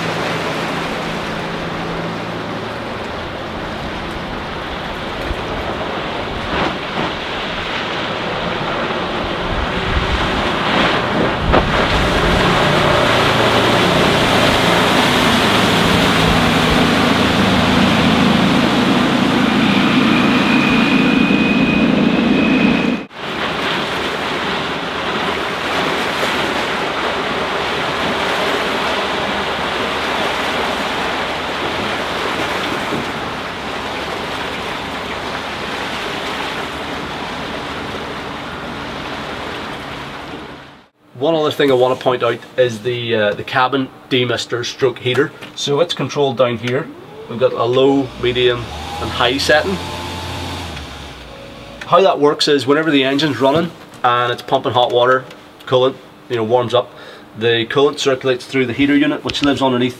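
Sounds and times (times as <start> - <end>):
wind buffeting microphone: 0.0 - 22.9
motorboat engine hum: 0.0 - 57.5
rushing boat wake: 0.0 - 59.9.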